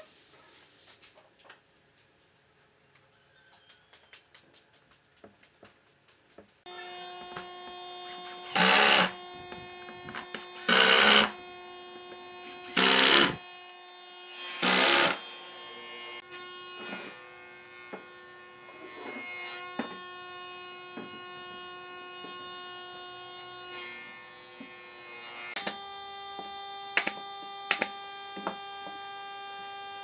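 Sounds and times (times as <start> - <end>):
power tool motor running: 6.7 - 30.0
tool cutting into wood: 8.0 - 9.2, 10.0 - 11.4, 12.4 - 13.4, 14.5 - 15.2, 25.6 - 25.8.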